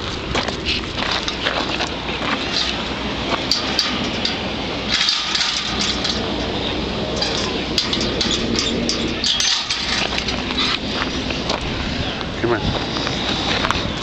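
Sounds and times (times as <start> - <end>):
footsteps crunching on gravel: 0.0 - 3.8, 7.1 - 14.0
light metallic clinking: 2.4 - 10.8.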